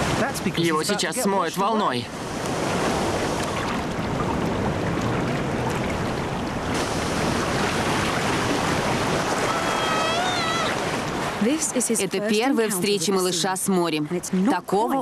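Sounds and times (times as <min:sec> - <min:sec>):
storm surf breaking over rocks: 0:00.0 - 0:13.2
short wavering cry: 0:09.4 - 0:10.8.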